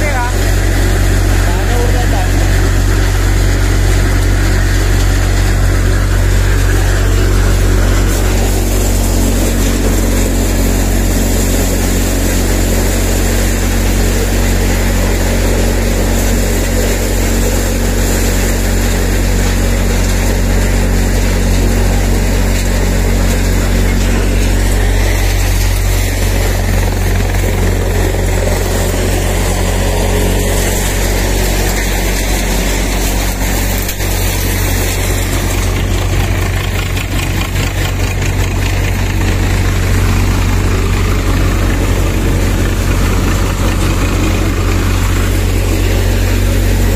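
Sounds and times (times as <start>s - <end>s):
thresher machine running: 0.0s - 46.9s.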